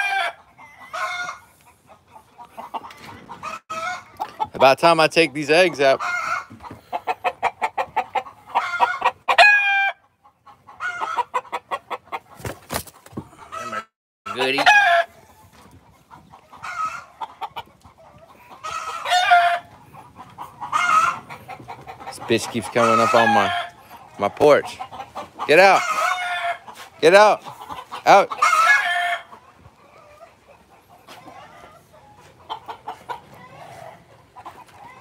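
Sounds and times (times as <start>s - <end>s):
chickens clucking: 0.0s - 35.0s
rooster crowing: 8.7s - 10.0s.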